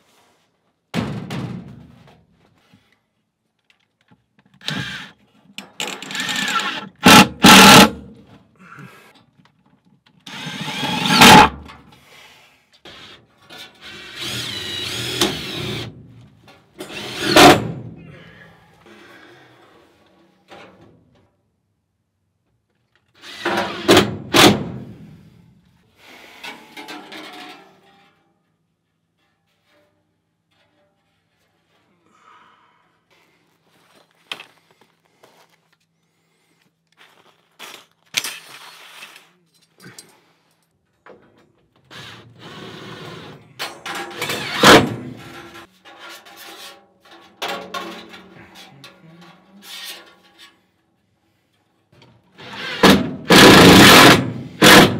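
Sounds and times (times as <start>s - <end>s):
cordless drill driving screws: 4.6s - 5.2s, 5.8s - 7.9s, 10.3s - 11.5s, 13.8s - 15.9s, 16.8s - 17.6s.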